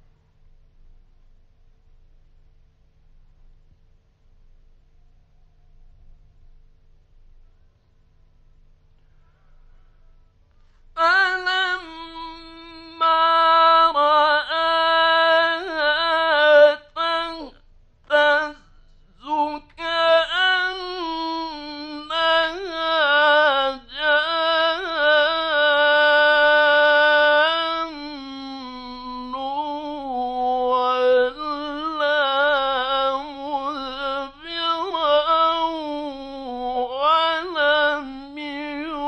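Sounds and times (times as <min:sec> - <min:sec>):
man chanting melodically: 0:11.0 - 0:39.0.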